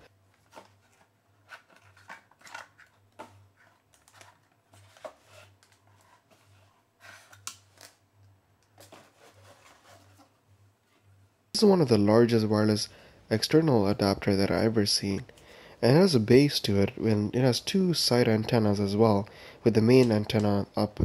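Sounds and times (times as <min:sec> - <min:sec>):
box handling clicks and rustles: 0:00.3 - 0:06.5.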